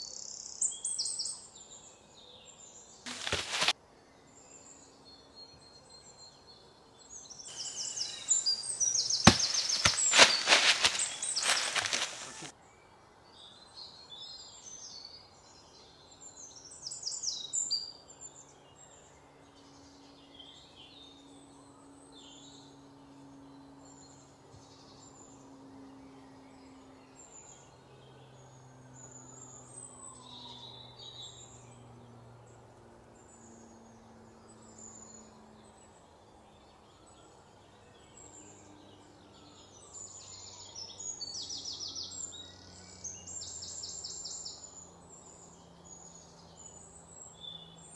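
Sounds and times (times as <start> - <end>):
birds chirping: 7.1 - 12.5.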